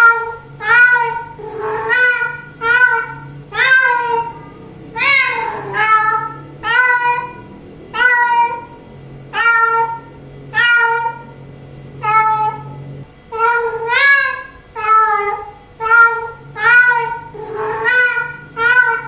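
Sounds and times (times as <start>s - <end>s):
cat meowing: 0.0s - 7.4s, 9.4s - 11.3s, 12.0s - 12.8s.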